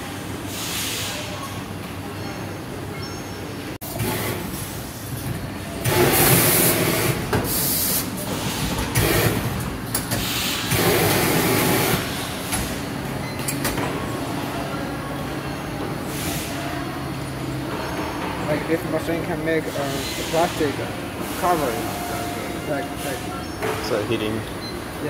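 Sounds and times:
packaging machinery running: 0:03.8 - 0:14.0.

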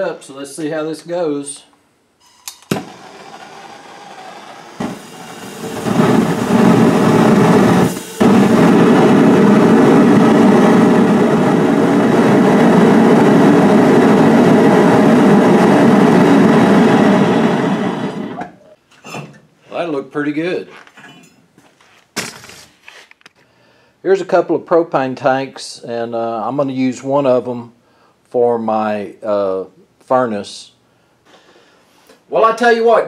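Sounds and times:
propane burner roaring: 0:02.3 - 0:18.7.

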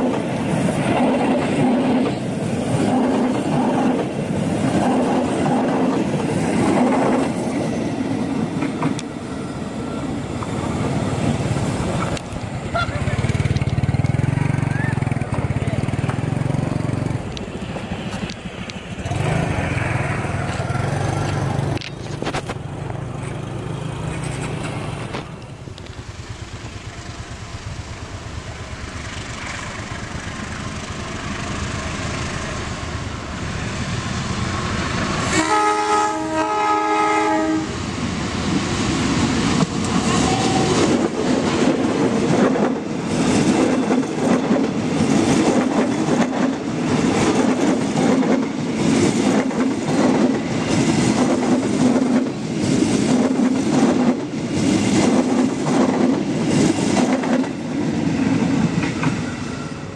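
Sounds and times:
train rumbling: 0:00.0 - 0:59.9
train horn: 0:35.2 - 0:37.8.

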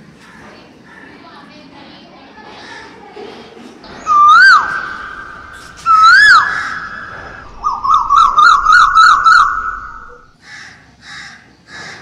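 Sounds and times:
loud whistling: 0:03.9 - 0:10.4.

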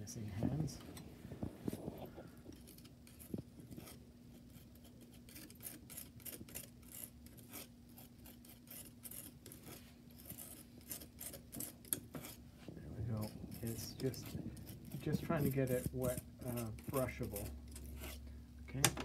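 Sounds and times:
paint scraping on glass palette: 0:01.6 - 0:18.3.

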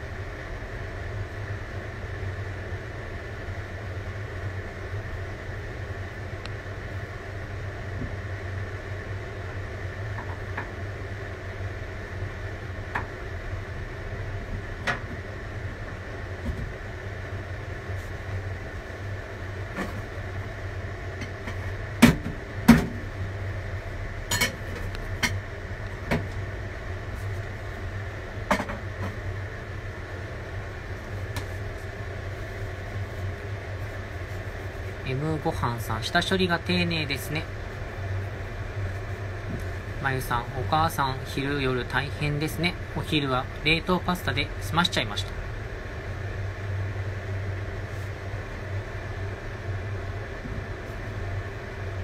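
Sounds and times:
low kitchen hum: 0:00.0 - 0:52.0.

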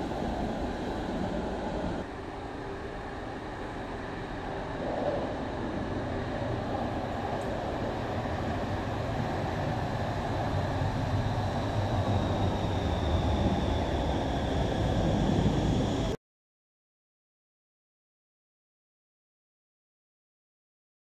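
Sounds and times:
faint high whine: 0:00.0 - 0:16.2
train wheels rumbling on rails: 0:00.0 - 0:16.2.

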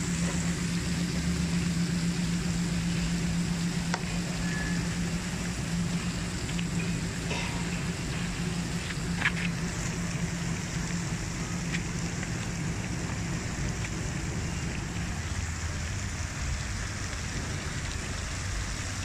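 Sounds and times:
fountain water splashing on pond: 0:00.0 - 0:19.0.

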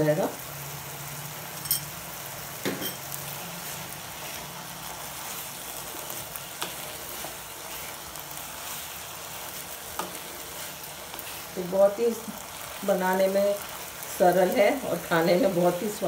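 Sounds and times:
food sizzling in a pan: 0:00.0 - 0:16.0
wooden spatula stirring and scraping: 0:03.2 - 0:16.0.

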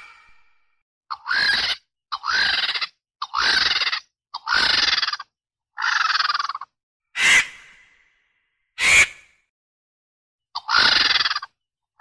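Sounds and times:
vulture rasping squawks: 0:00.0 - 0:00.4, 0:01.1 - 0:07.7, 0:08.8 - 0:09.3, 0:10.6 - 0:11.6.

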